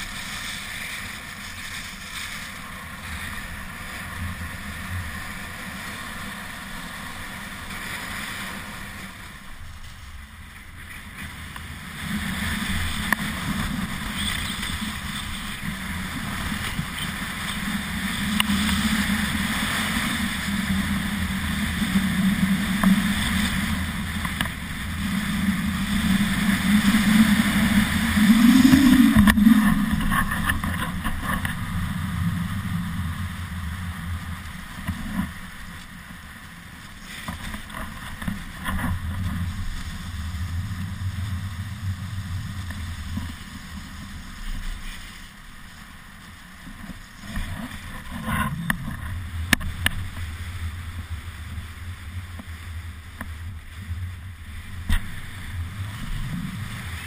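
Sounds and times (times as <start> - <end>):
skis scraping over snow: 0.0 - 57.0
wind buffeting microphone: 7.7 - 35.8.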